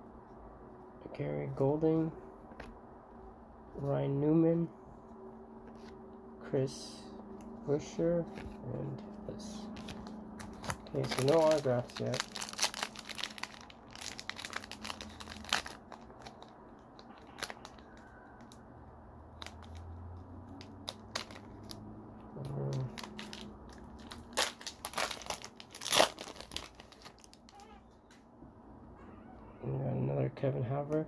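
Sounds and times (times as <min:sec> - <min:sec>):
foil pack crinkling: 0:09.5 - 0:18.6, 0:19.4 - 0:19.9, 0:20.6 - 0:21.8, 0:22.5 - 0:27.8
foil pack ripping: 0:09.8 - 0:16.5, 0:20.6 - 0:21.8, 0:22.6 - 0:27.6.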